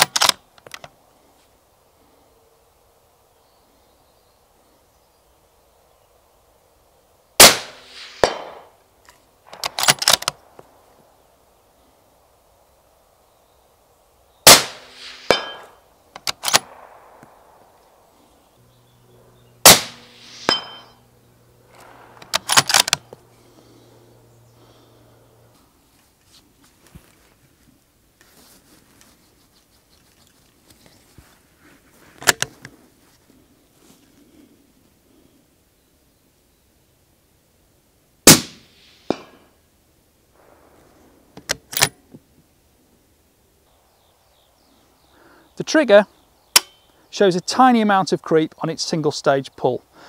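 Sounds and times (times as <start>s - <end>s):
rifle bolt metallic clicks: 0.0s - 0.9s, 8.2s - 10.6s, 15.3s - 17.9s, 21.7s - 23.1s, 41.4s - 42.0s
sharp crack: 7.4s - 8.8s, 9.5s - 10.8s, 14.4s - 18.3s, 19.6s - 21.1s, 21.7s - 23.3s, 38.3s - 39.6s, 46.5s - 46.8s
suppressed rifle shot: 7.4s - 8.8s, 9.5s - 10.8s, 14.4s - 18.3s, 19.6s - 21.0s, 21.7s - 23.3s, 38.2s - 39.5s.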